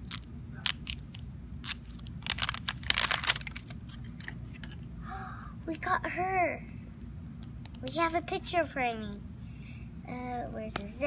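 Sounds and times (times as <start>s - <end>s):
plastic wrapping tearing: 0.0s - 4.8s.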